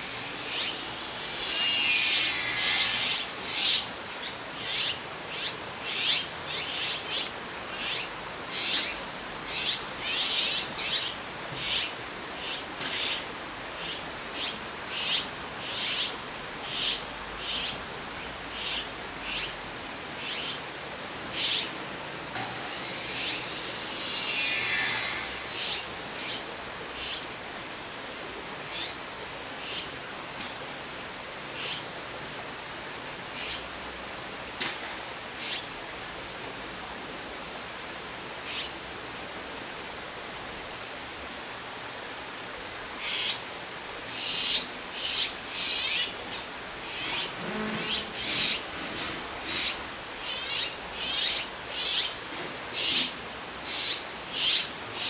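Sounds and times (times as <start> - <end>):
fledglings raspy begging calls: 0.0 - 19.6, 20.2 - 20.7, 21.3 - 21.8, 22.7 - 27.3, 29.6 - 30.0, 31.6 - 31.9, 33.4 - 33.7, 43.0 - 43.4, 44.1 - 48.7, 49.4 - 52.2, 52.8 - 55.0.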